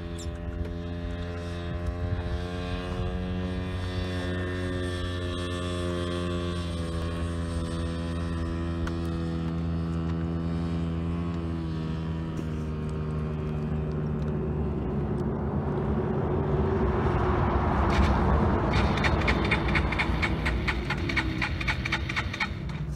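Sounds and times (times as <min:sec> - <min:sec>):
engine running: 0:00.0 - 0:22.9
rushing noise: 0:15.4 - 0:22.8.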